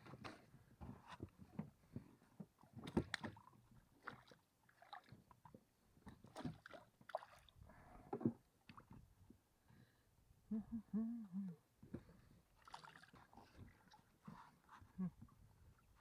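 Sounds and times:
small water splashes: 2.8s - 5.5s, 6.2s - 7.6s, 12.6s - 14.1s.

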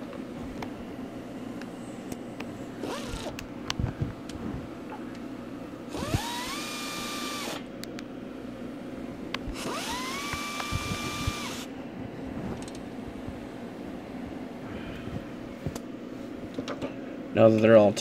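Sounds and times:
air ratchet whining: 2.8s - 3.4s, 5.9s - 7.7s, 9.5s - 11.7s.

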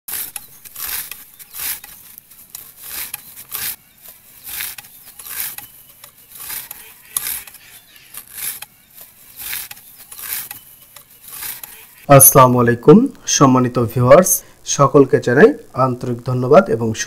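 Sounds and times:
blade chopping dry straw: 0.1s - 12.0s.

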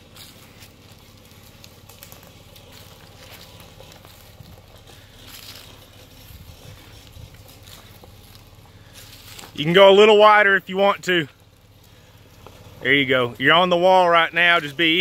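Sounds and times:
low engine hum: 0.0s - 15.0s
tyres crackling over dirt: 0.0s - 15.0s.

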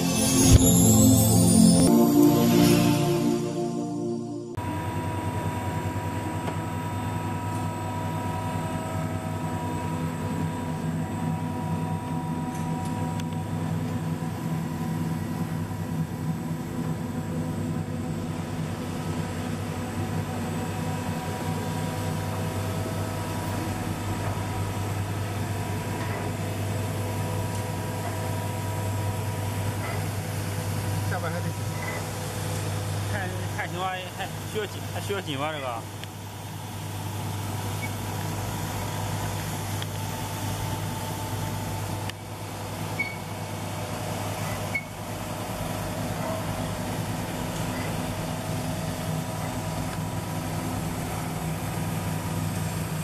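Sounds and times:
steady tones: 0.0s - 4.7s
machine drone with low hum: 0.0s - 35.0s, 35.7s - 53.0s.

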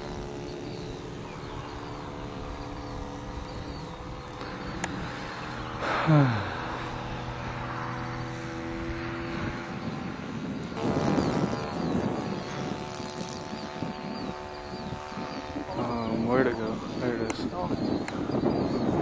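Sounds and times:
model airplane engine droning: 0.0s - 19.0s.

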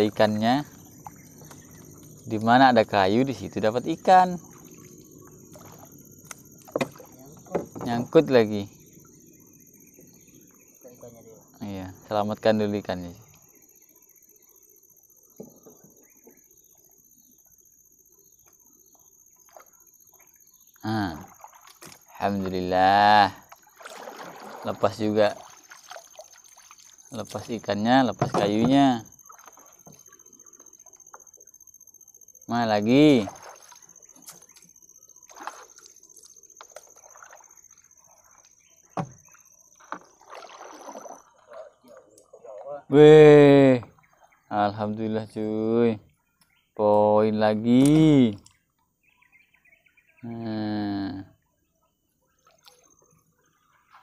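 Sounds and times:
high-pitched insect chorus: 0.0s - 54.0s
water dripping and splashing: 21.2s - 22.6s, 23.4s - 27.8s, 33.1s - 34.6s, 35.3s - 42.6s
knock on wooden boat: 39.0s - 39.2s.

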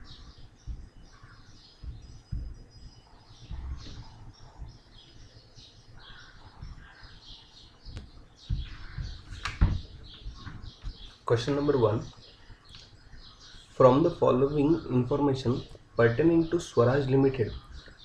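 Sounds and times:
low dull thumps: 0.0s - 12.2s
birds chirping: 0.0s - 18.0s.

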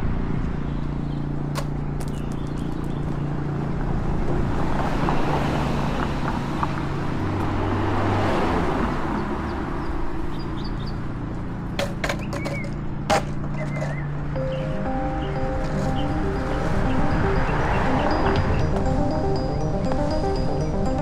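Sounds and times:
roadside traffic: 0.0s - 21.0s.

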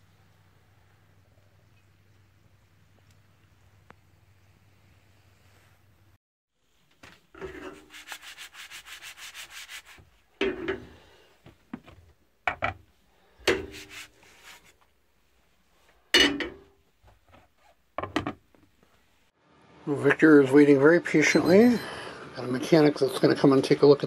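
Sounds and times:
pan and lid clattering: 7.4s - 7.9s, 10.4s - 11.1s, 13.5s - 14.0s, 16.2s - 16.7s.

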